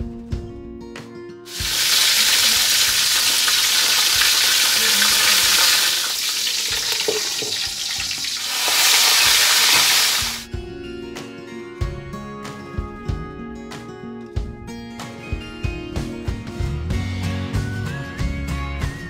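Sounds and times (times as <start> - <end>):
fish sizzling in wok: 1.5 - 10.5.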